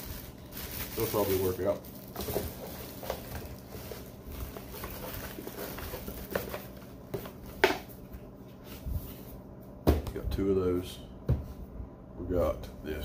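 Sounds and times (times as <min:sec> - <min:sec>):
steady low hum: 0:00.0 - 0:13.0
cardboard box rustling: 0:02.1 - 0:07.3.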